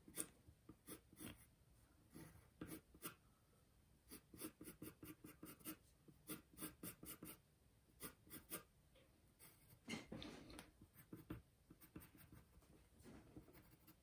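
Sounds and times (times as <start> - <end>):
pencil scratching on paper: 0.0 - 1.5, 2.1 - 3.2, 4.1 - 7.4, 8.0 - 8.7, 10.8 - 14.0.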